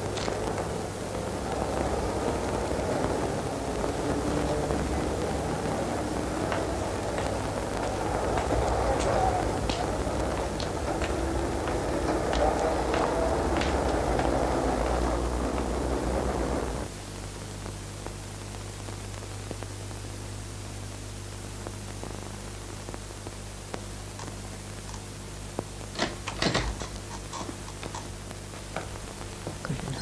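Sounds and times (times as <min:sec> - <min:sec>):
film soundtrack hiss and hum: 0:00.0 - 0:30.0
rush of background noise: 0:00.0 - 0:30.0
door opening clicks and knocks: 0:26.0 - 0:26.9.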